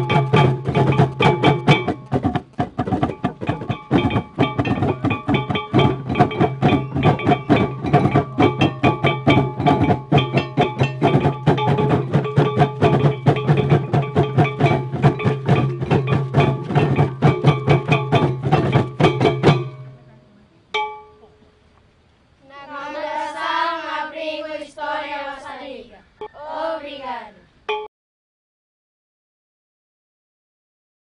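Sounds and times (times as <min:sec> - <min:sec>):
ringing percussion strikes: 0:00.0 - 0:21.4, 0:27.7 - 0:27.9.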